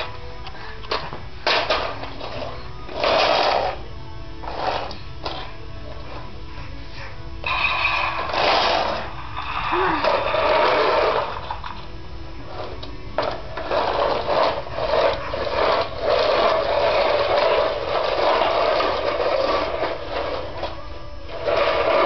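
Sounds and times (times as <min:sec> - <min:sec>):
toy truck wheels rattling on tile: 0:01.4 - 0:03.8, 0:07.4 - 0:11.8, 0:12.6 - 0:20.7, 0:21.3 - 0:22.0.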